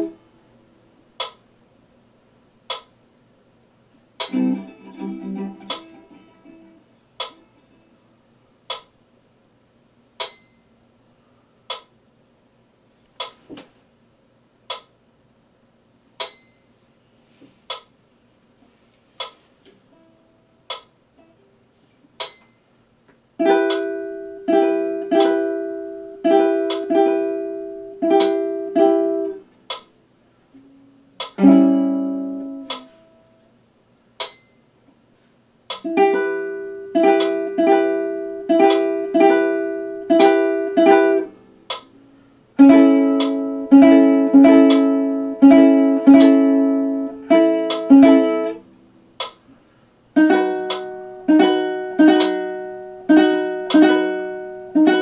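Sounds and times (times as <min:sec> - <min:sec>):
ukulele strummed in chords: 0:00.0 - 0:00.2, 0:04.2 - 0:08.0, 0:23.4 - 0:29.4, 0:30.6 - 0:33.4, 0:35.8 - 0:48.7, 0:50.1 - 0:55.0.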